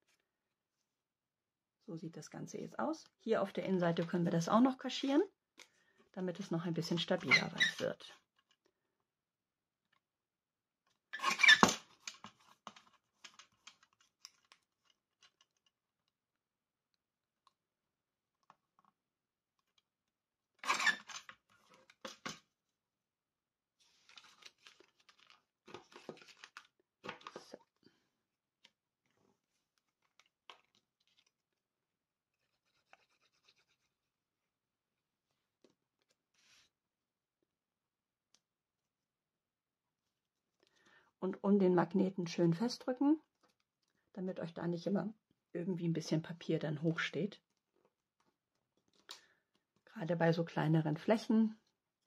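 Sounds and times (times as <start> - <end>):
rustling of card pieces: 23.8 - 27.6.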